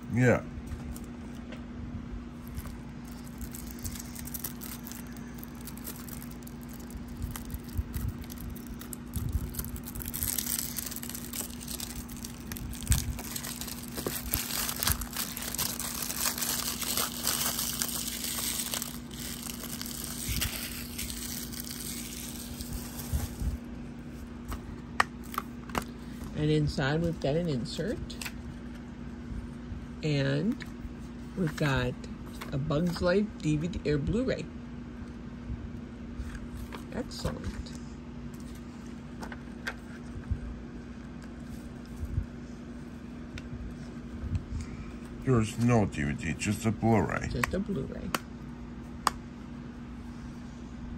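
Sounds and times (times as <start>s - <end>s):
plastic shrink wrap crinkling: 2.4s - 23.7s.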